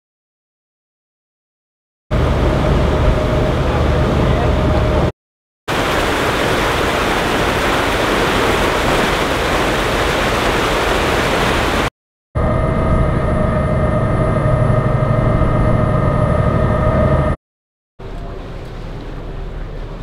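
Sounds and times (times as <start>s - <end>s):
ship engine drone: 2.1s - 5.1s, 5.7s - 17.4s, 18.0s - 20.0s
wind: 2.1s - 5.1s, 5.7s - 17.2s, 18.0s - 20.0s
ship wake rushing: 5.7s - 16.8s.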